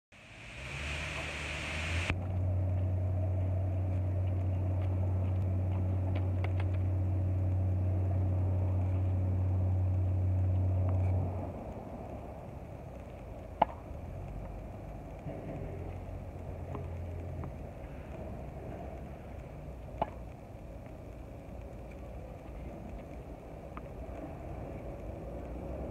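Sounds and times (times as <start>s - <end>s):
low engine hum: 0.2s - 25.9s.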